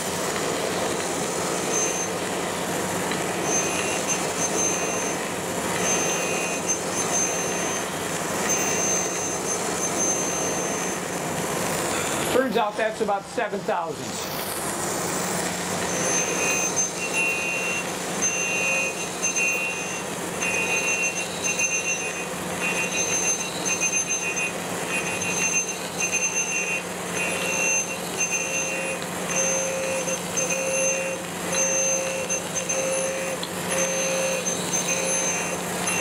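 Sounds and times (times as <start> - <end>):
grinder motor hum: 0.0 - 36.0
high-pitched grinding ring: 1.6 - 2.2, 3.3 - 11.2, 15.8 - 36.0.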